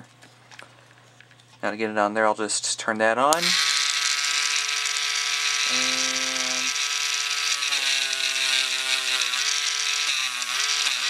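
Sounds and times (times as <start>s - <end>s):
rotary tool whining: 3.3s - 11.0s.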